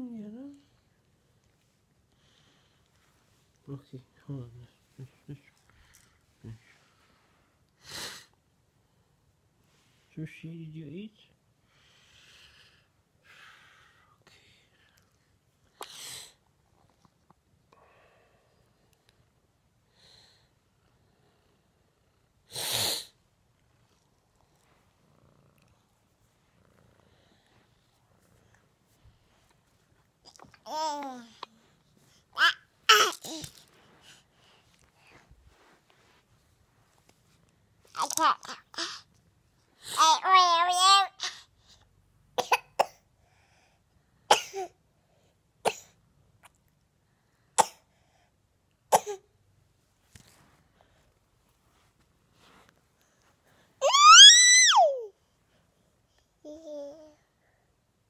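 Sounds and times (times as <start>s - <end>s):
cat sneezing: 22.5s - 23.2s
toddler coughing: 32.4s - 33.4s, 42.4s - 43.0s, 44.3s - 44.8s, 48.9s - 49.2s.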